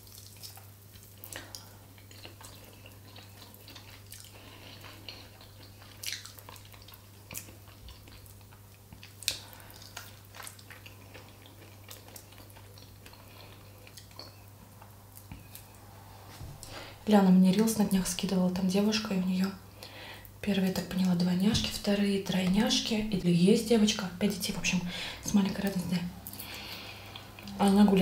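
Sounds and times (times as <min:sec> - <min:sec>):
quiet chewing: 0:00.0 - 0:17.0, 0:24.6 - 0:27.6.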